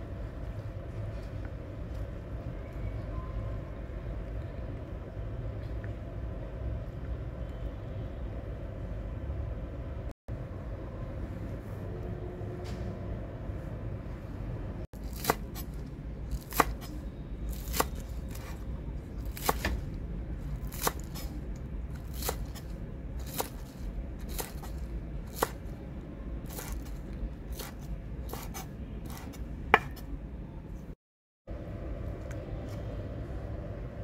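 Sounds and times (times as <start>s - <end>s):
steady low rumble: 0.0s - 34.0s
knife snipping food: 20.6s - 21.4s, 22.0s - 25.6s, 26.5s - 30.0s.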